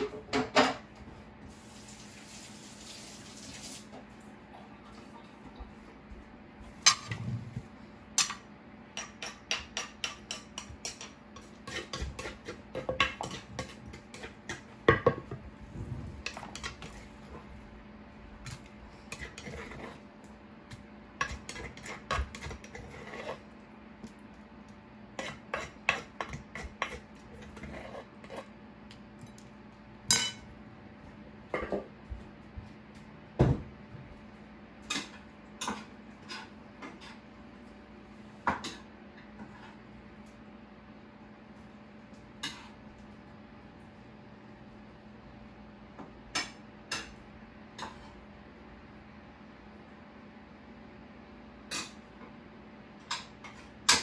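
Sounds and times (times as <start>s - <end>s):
metal spoon scraping a mortar: 10.0s - 14.4s, 19.1s - 20.0s, 21.2s - 23.4s, 25.2s - 28.4s.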